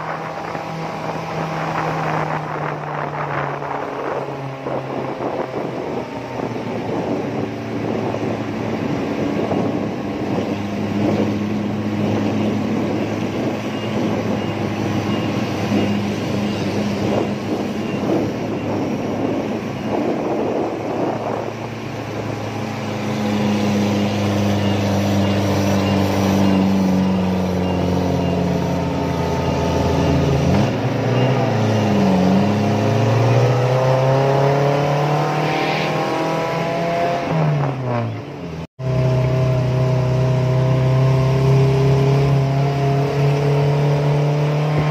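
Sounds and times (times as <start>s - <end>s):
rushing wind noise: 0.0s - 44.9s
vehicle engine revving: 0.0s - 44.9s.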